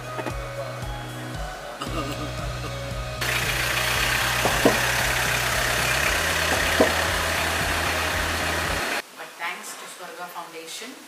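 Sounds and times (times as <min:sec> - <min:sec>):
background music with bass: 0:00.0 - 0:09.0
van engine idling: 0:02.1 - 0:09.0.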